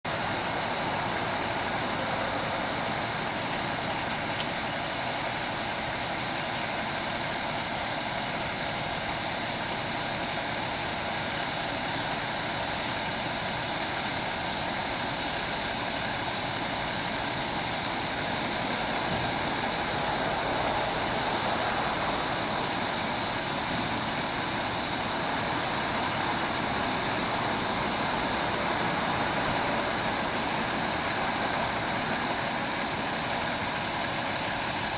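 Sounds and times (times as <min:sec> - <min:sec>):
steady rushing noise: 0:15.8 - 0:34.9.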